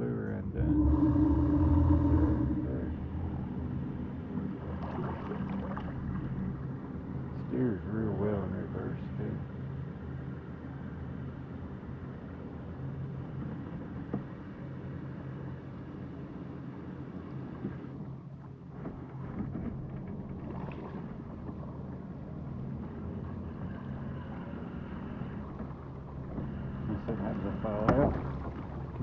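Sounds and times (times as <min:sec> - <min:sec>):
kayak motor humming: 0:00.5 - 0:29.0.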